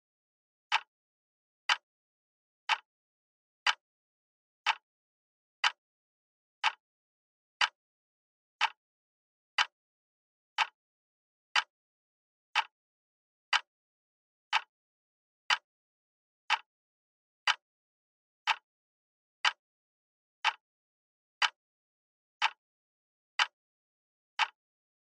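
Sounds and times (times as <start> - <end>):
clock ticking: 4.6 - 4.8, 10.6 - 10.8.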